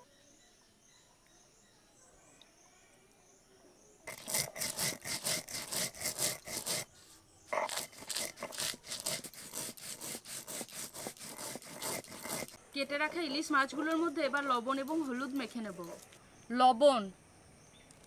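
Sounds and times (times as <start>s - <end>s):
stone grinding rasping strokes: 4.1s - 16.0s.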